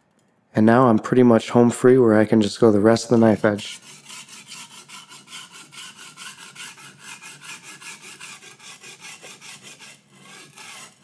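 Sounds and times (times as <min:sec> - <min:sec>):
knife scraping on whetstone: 0:03.1 - 0:11.0.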